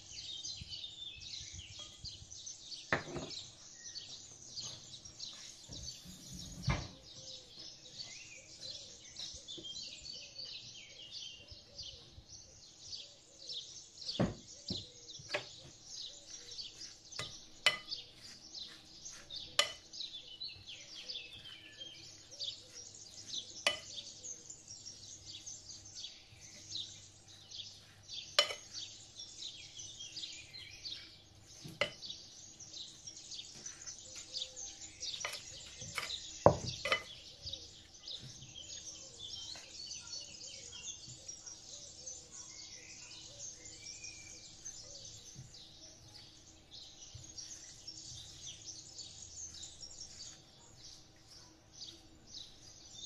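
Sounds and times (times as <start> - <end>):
small birds chirping: 0.0 - 53.0
wooden spoon stirring salad: 16.1 - 19.9, 26.3 - 29.2, 35.2 - 37.3.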